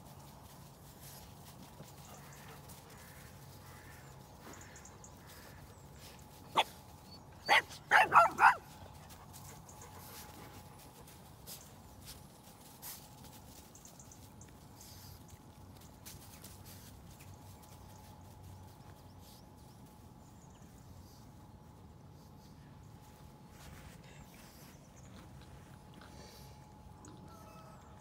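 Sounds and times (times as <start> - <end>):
dog barking: 7.5 - 8.7.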